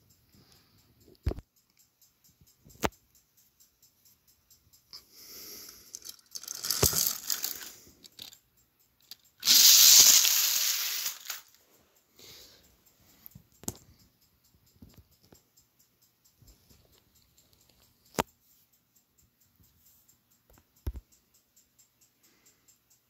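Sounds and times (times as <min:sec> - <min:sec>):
plastic toy trains clattering: 0:05.8 - 0:08.4, 0:09.0 - 0:11.6.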